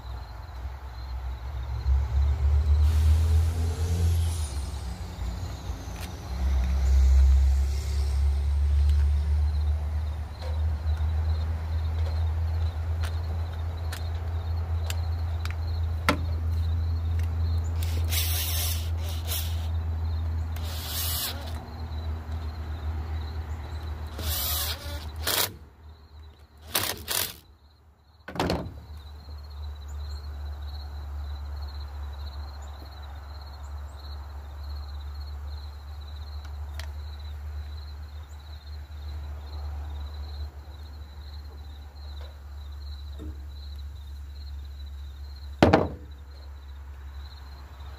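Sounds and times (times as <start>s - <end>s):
high insect trill: 0.0s - 47.9s
plastic clunks: 28.3s - 28.8s, 45.6s - 46.1s.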